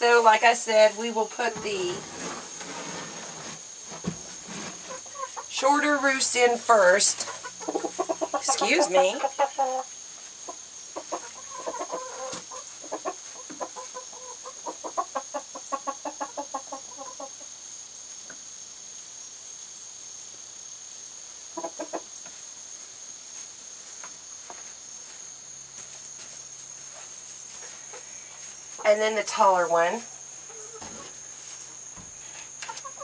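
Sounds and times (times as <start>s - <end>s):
chicken clucking: 4.5s - 5.5s, 7.0s - 17.6s, 21.4s - 22.4s, 30.4s - 31.6s, 32.3s - 33.0s.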